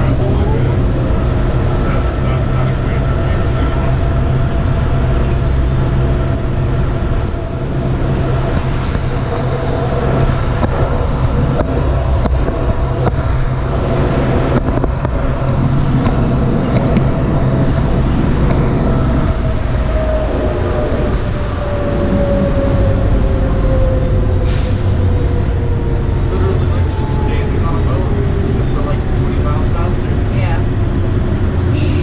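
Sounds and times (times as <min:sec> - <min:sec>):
tram rumbling with drive whine: 0:00.0 - 0:32.0.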